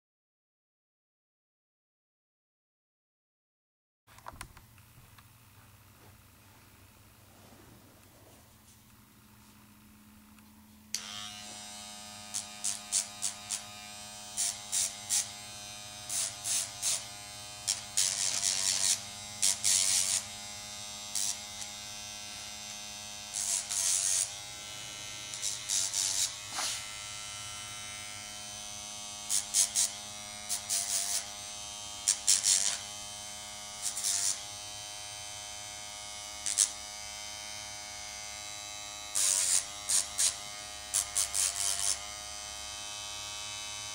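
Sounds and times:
nail grinder motor whine: 9.6s - 43.9s
grinding on nails: 23.2s - 28.5s.

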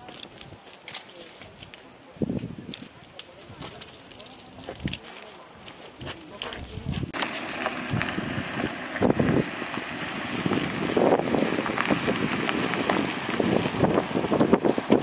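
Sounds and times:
wind buffeting microphone: 2.1s - 3.9s, 5.9s - 15.0s.

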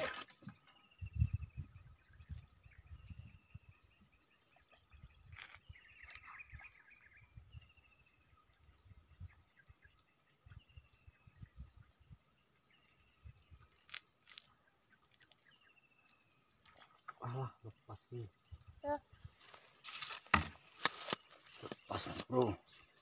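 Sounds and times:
bird chirps: 0.0s - 19.3s
low rumbles on microphone: 0.9s - 3.9s.

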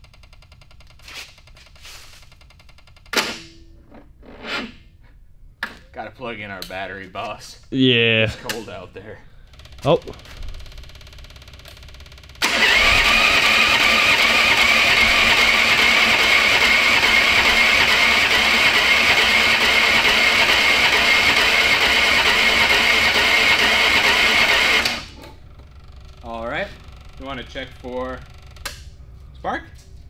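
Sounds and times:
electric starter cranking engine: 9.4s - 28.9s.

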